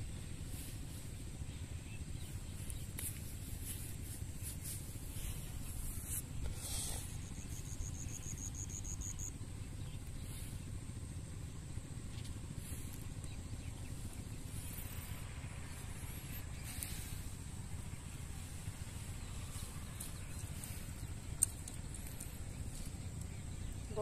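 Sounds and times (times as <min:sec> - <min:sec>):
steady low rumble: 0:00.0 - 0:24.0
high hiss: 0:04.3 - 0:07.5.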